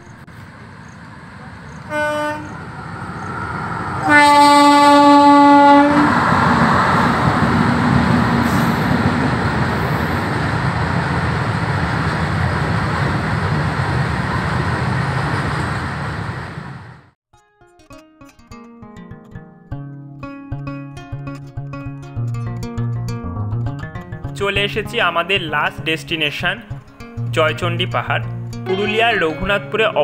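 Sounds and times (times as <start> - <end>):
locomotive horn blasts: 0.0 - 0.4, 1.7 - 2.9, 3.9 - 6.3, 28.7 - 30.0
train wagons rumbling past: 0.0 - 17.2.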